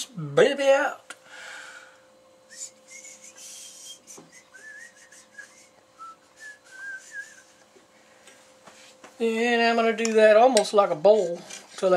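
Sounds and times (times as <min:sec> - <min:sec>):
person whistling: 0:02.5 - 0:07.6.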